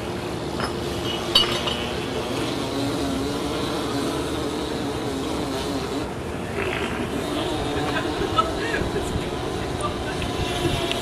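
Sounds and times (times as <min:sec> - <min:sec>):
engine-like drone: 0:00.0 - 0:11.0
sharp clink: 0:00.6 - 0:02.0.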